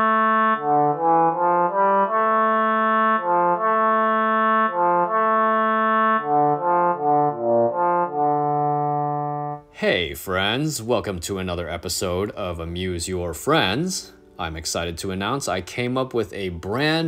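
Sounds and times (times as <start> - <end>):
music with brass-like lead: 0.0 - 9.7.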